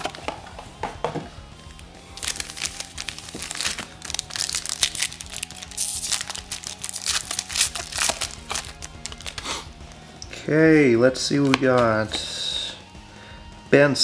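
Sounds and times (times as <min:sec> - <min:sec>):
faint background music: 0:00.0 - 0:14.0
foil wrappers crinkling and tearing: 0:02.2 - 0:09.5.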